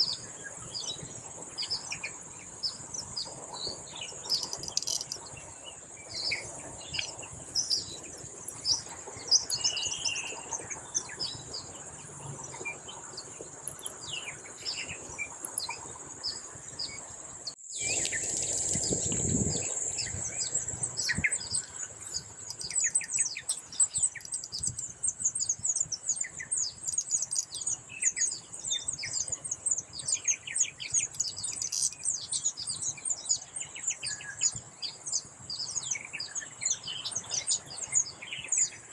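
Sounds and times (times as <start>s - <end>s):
birds chirping and chattering: 0.0s - 17.2s, 17.8s - 38.9s
high insect buzz: 17.7s - 24.9s.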